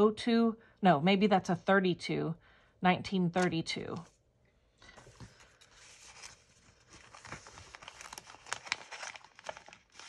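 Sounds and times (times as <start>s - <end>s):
paper rustling and crinkling: 4.8s - 10.0s.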